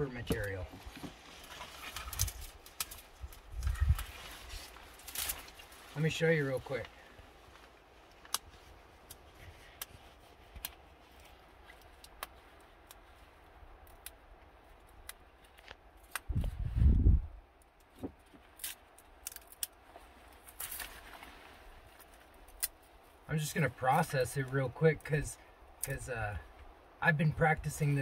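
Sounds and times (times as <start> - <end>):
dry stalks cracking: 0.0 - 16.7, 17.5 - 23.3
low rumble: 16.3 - 17.4.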